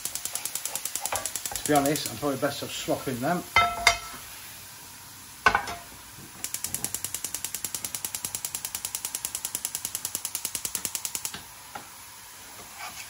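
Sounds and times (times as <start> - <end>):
gas hob igniter clicking: 0.0 - 2.2, 6.4 - 11.5
pan knocking onto hob: 3.6 - 4.2, 5.4 - 5.9.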